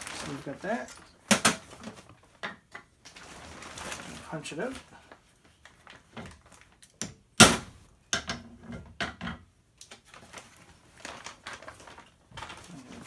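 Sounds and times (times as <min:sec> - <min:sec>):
plastic tarp rustling: 0:00.0 - 0:06.8, 0:09.9 - 0:13.0.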